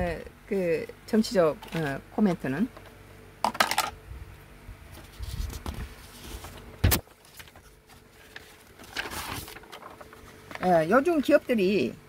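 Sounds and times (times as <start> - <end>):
camera handling rumbles and rustles: 4.9 - 10.6.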